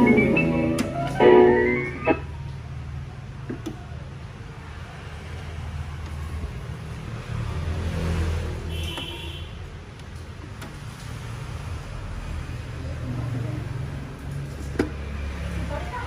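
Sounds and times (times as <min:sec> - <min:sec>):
speaker rumble and hiss: 0:00.0 - 0:02.8.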